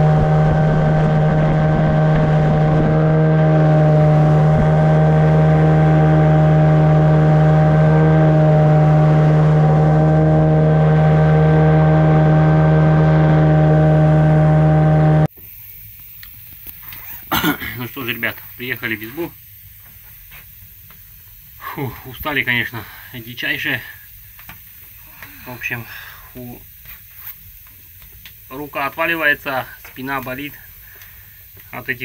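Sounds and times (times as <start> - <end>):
outboard motor running: 0.0 - 15.3.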